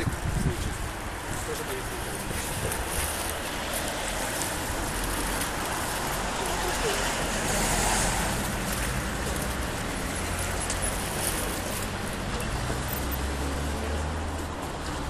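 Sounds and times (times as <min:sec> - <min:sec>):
car passing: 0:01.3 - 0:15.0.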